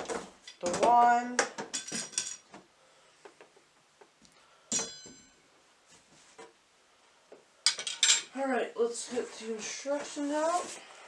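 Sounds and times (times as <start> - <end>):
metallic clink: 4.7 - 5.4.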